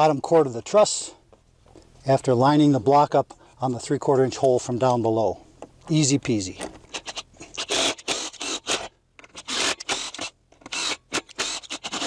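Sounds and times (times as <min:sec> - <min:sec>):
cordless driver driving screws: 0:06.6 - 0:12.0.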